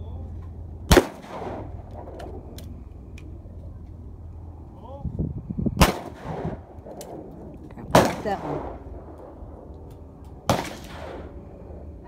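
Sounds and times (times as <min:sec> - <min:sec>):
shotgun shot with echo: 0:00.9 - 0:01.8, 0:05.8 - 0:06.6, 0:07.9 - 0:08.9, 0:10.5 - 0:11.4.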